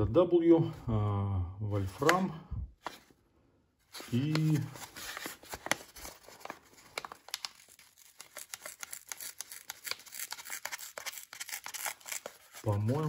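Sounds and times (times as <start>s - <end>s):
paper wrapping crinkling: 3.9s - 13.0s.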